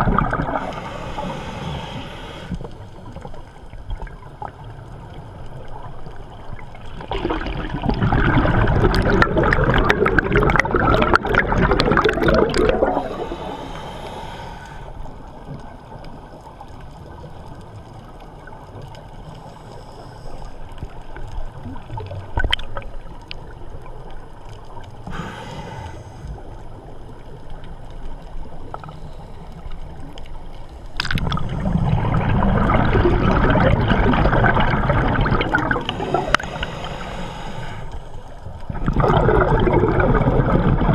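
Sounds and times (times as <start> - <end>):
exhaled bubbles gurgling: 0.0 - 40.9
hissing inhales through regulator: 0.4 - 3.0, 12.7 - 15.3, 25.0 - 26.8, 35.7 - 38.5.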